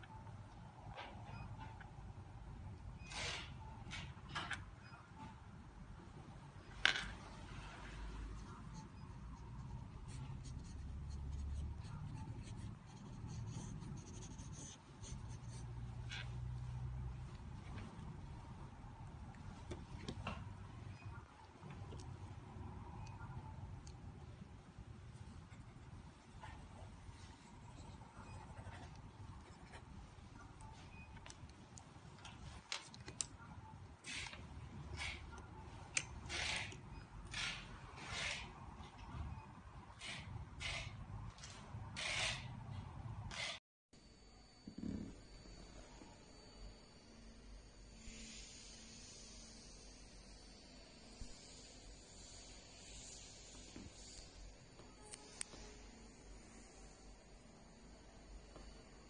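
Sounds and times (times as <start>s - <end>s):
low background hum: 0.0s - 59.0s
pencil scratching on paper: 8.5s - 16.3s, 26.5s - 29.9s.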